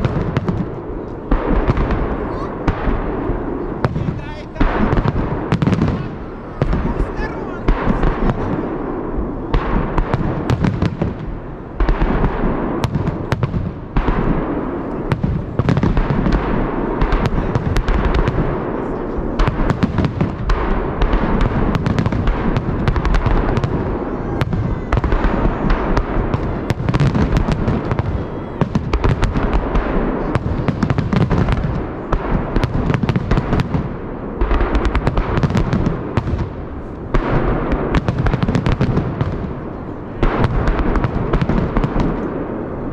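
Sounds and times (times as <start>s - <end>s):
fireworks crackling pops: 0.0s - 8.8s, 9.5s - 42.9s
low fireworks rumble: 0.0s - 42.9s.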